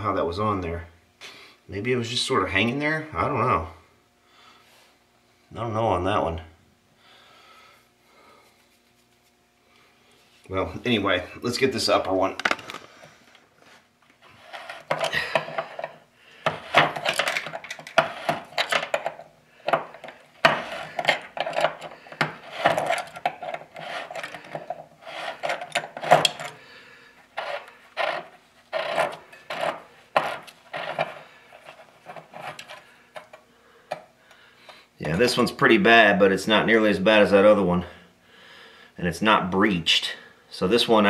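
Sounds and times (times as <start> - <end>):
metal threads scraping: 14.2 - 26.6, 27.3 - 33.3.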